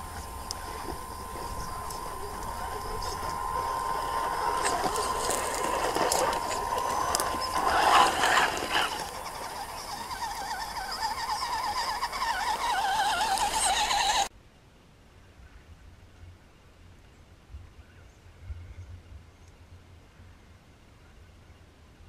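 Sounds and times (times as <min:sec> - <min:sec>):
electric motors and gears whining: 0:00.0 - 0:14.3.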